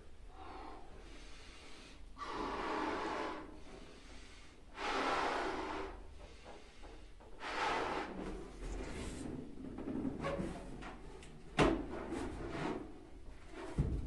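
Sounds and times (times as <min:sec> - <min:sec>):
man blowing up balloon: 0:04.8 - 0:06.0.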